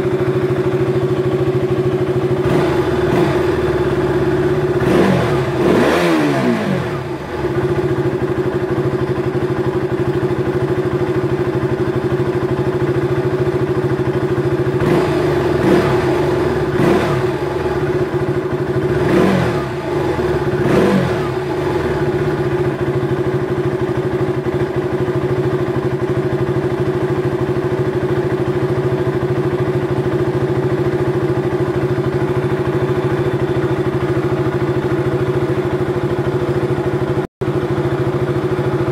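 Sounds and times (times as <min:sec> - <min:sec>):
motorcycle engine idling and revving: 0:00.0 - 0:38.9.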